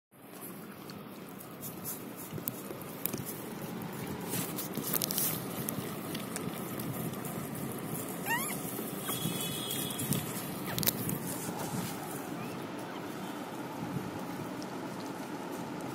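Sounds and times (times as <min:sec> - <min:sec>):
dog licking wetly: 0:00.2 - 0:12.4
crackling plastic wrappers: 0:01.8 - 0:12.4.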